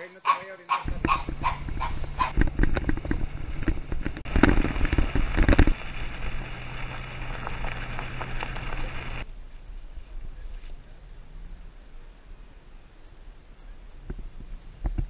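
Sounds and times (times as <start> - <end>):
truck engine and road noise: 0.9 - 9.3.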